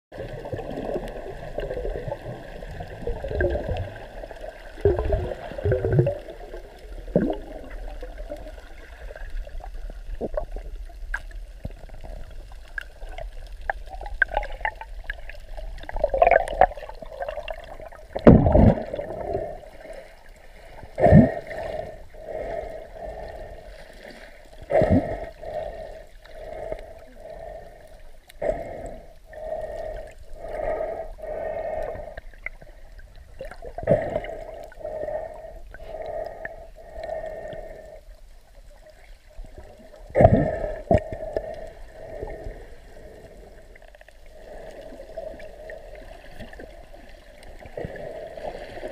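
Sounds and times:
water gushes and thumps: 0:00.1 - 0:19.5, 0:40.0 - 0:41.3
muffled underwater sloshing: 0:00.1 - 0:48.9.

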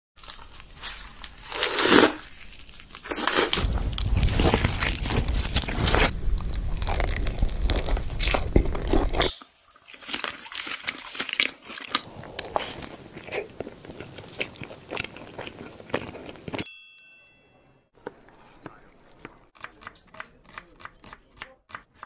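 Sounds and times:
crunchy food chewing: 0:00.2 - 0:09.3, 0:09.9 - 0:16.7.

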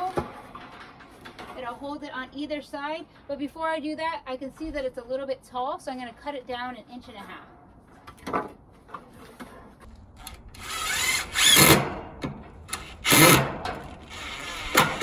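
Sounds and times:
cordless drill whine: 0:10.6 - 0:11.8.

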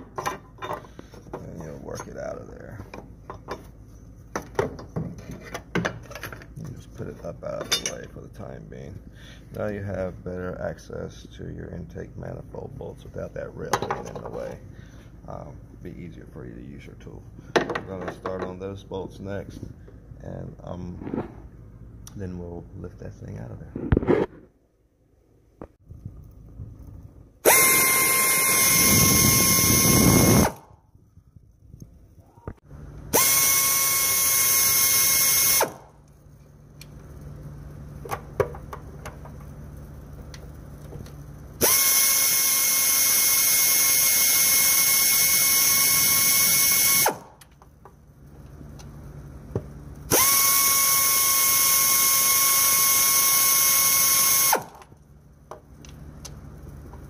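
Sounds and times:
electric power tool running: 0:27.4 - 0:30.6, 0:33.1 - 0:35.8, 0:41.6 - 0:47.3, 0:50.1 - 0:54.9.

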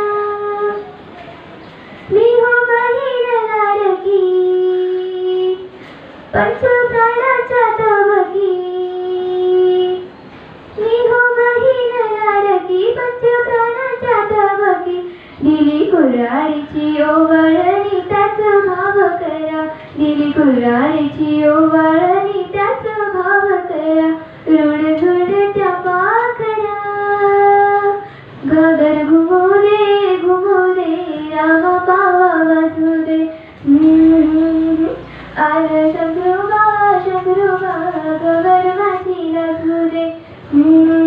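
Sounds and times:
girl singing folk song: 0:00.0 - 0:01.2, 0:01.9 - 0:41.0.

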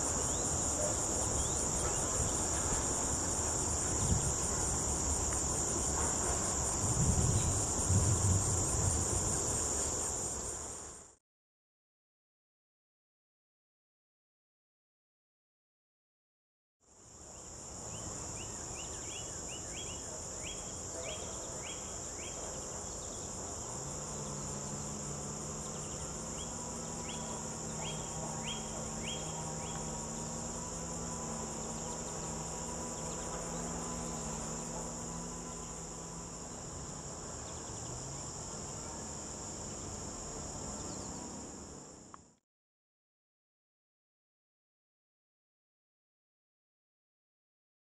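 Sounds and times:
insects buzzing: 0:00.0 - 0:11.2, 0:16.9 - 0:42.4.

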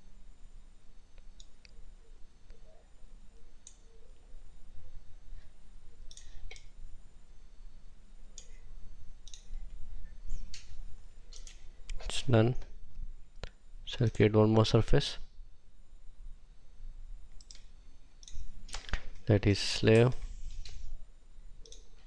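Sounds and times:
low steady hum: 0:00.0 - 0:22.0
computer mouse clicking: 0:01.2 - 0:01.8, 0:06.0 - 0:06.7, 0:09.2 - 0:09.5, 0:10.4 - 0:11.7, 0:17.3 - 0:19.1, 0:21.6 - 0:22.0.

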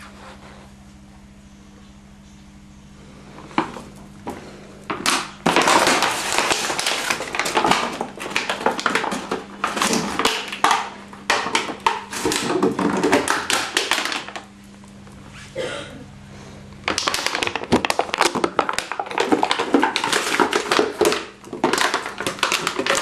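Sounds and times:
dog crushing plastic bottle: 0:03.5 - 0:14.5, 0:16.8 - 0:23.0.

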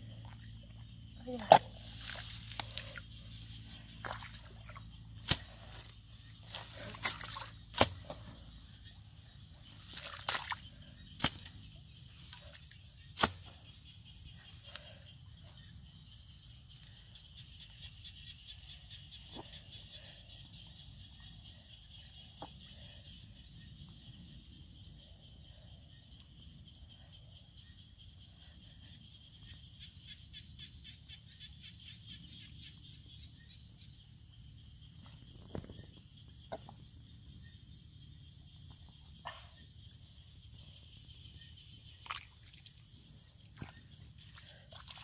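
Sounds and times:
hoe chopping into wet mud: 0:05.2 - 0:05.9, 0:06.5 - 0:08.3, 0:11.2 - 0:11.6, 0:13.2 - 0:13.5.

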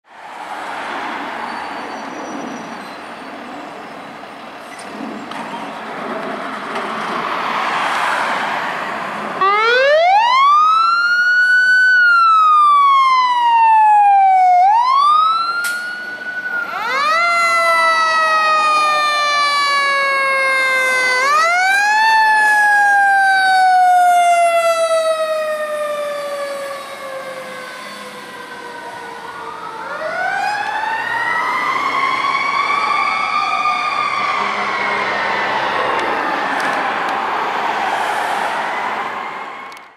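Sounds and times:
vehicle noise: 0:00.0 - 0:39.9
fire engine siren wailing: 0:09.4 - 0:39.9.

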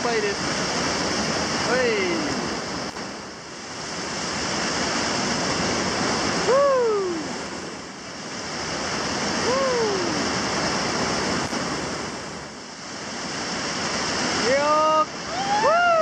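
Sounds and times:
whitewater rushing: 0:00.0 - 0:16.0
person shouting: 0:06.5 - 0:07.3, 0:09.4 - 0:10.2, 0:14.7 - 0:16.0.

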